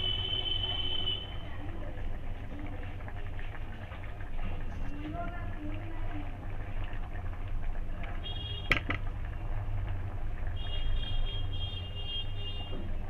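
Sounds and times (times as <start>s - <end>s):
low kitchen hum: 0.0s - 13.0s
knock against cooking pan: 8.7s - 9.1s.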